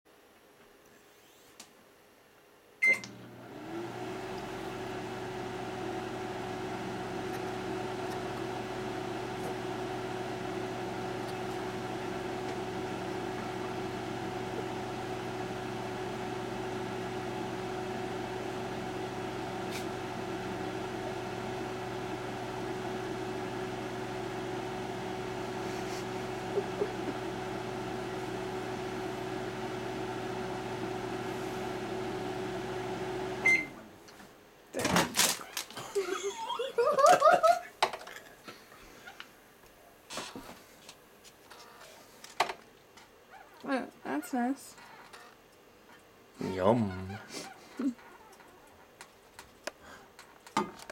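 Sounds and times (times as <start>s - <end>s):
microwave beep: 2.8s - 3.3s, 33.3s - 33.8s
microwave oven humming: 2.8s - 34.0s.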